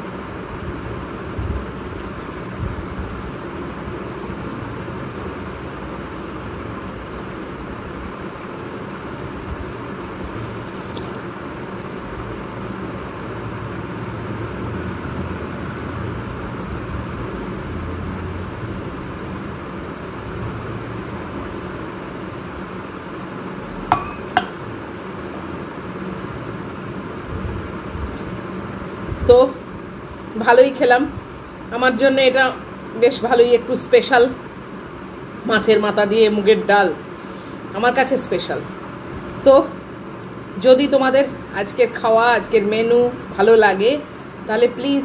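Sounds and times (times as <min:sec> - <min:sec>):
rushing background hum: 0:00.0 - 0:35.5
metal tumbler clinking: 0:23.9 - 0:24.6.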